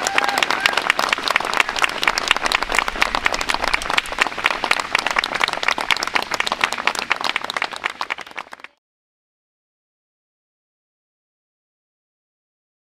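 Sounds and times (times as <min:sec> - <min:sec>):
crowd applauding: 0:00.0 - 0:08.8.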